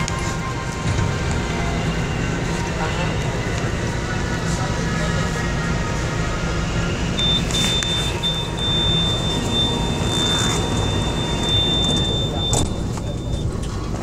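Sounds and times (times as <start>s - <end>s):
train car rumble: 0.0s - 14.0s
high electronic tone: 7.2s - 13.5s.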